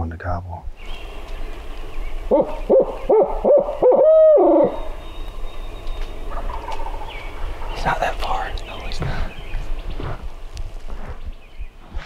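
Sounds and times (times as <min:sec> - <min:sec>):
imitation owl hoots: 0:01.3 - 0:07.8.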